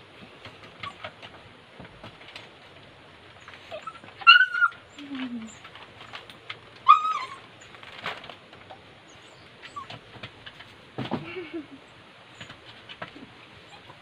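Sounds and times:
dogs yelping: 0.8s - 1.3s, 3.4s - 10.2s, 13.2s - 14.0s.

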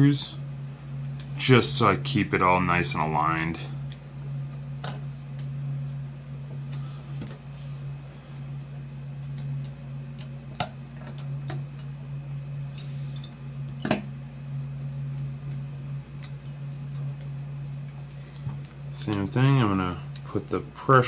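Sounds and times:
low hum: 0.0s - 21.0s.

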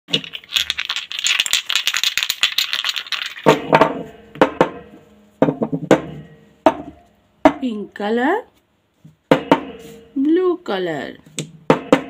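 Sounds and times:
plastic jars rattling together: 0.1s - 3.7s.

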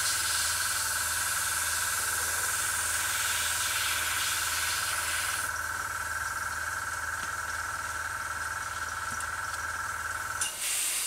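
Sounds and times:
airbrush air hiss: 0.0s - 5.5s, 10.4s - 11.0s
air compressor humming and whining: 0.0s - 11.0s.

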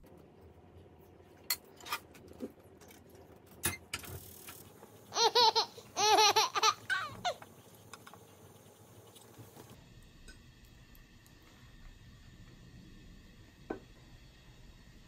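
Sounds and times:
person giggling: 5.2s - 7.4s.

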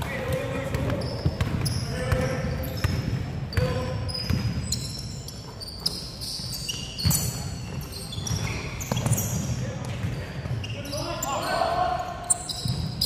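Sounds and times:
shoes squeaking on court floor: 0.0s - 13.0s
basketball bouncing: 0.2s - 4.7s.

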